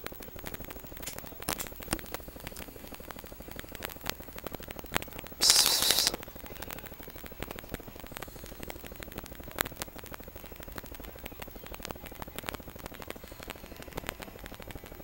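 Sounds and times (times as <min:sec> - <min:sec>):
faint clicks: 0:00.0 - 0:15.0
person hissing: 0:05.4 - 0:06.2.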